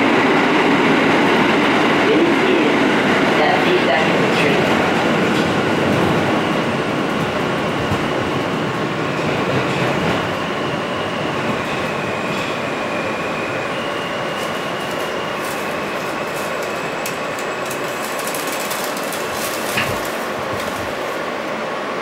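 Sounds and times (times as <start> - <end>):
subway car rumbling on rails: 0.0 - 22.0.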